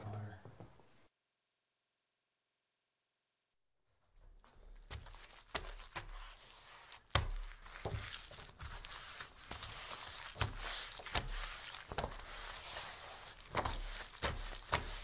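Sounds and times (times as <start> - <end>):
wet cloth knocks: 4.2 - 15.0
wet towel rubbing on table: 4.8 - 15.0.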